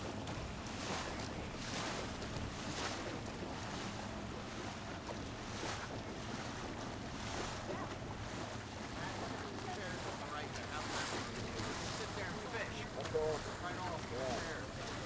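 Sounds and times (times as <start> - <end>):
boat motor running: 0.0 - 15.0
water rushing past: 0.0 - 15.0.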